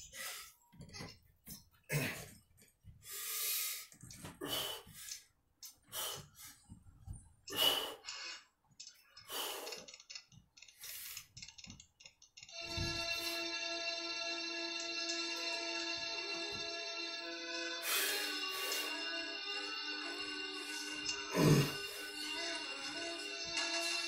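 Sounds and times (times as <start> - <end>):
man breathing hard: 3.0 - 6.8, 7.5 - 8.1, 9.2 - 9.9, 17.8 - 19.0.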